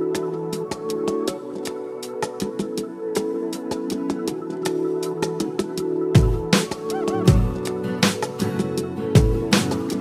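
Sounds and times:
sustained instrumental tones: 6.9s - 7.9s.

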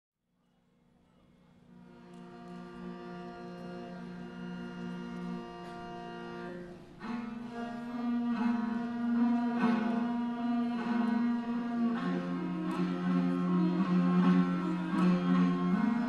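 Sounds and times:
bowed string instrument playing: 1.7s - 16.0s.

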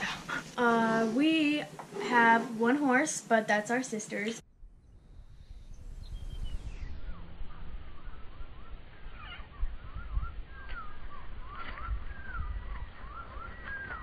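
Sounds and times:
wind rumble on microphone: 4.5s - 14.0s
birds whistling: 5.4s - 14.0s.

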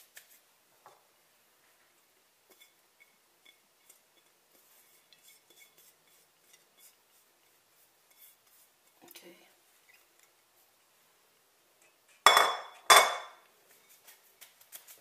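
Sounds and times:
rustle of grains: 3.8s - 9.9s
glass bowl knocking against metal pot: 12.3s - 13.4s.

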